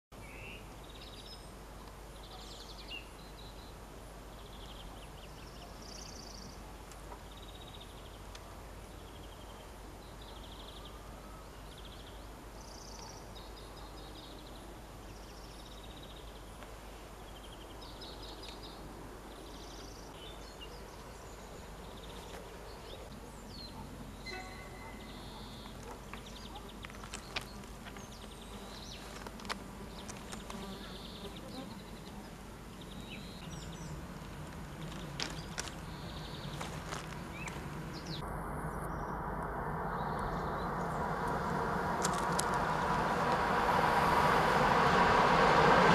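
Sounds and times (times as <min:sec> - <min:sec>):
faint background noise: 0:00.1 - 0:45.9
songbirds singing: 0:00.2 - 0:39.2, 0:39.8 - 0:44.4
faint low rumble: 0:32.0 - 0:45.9.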